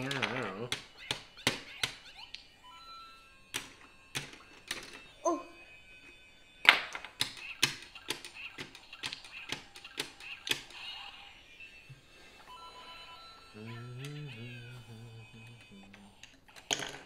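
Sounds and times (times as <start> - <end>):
plastic bricks clicking: 0.0 - 2.4, 6.7 - 10.8, 16.2 - 17.0.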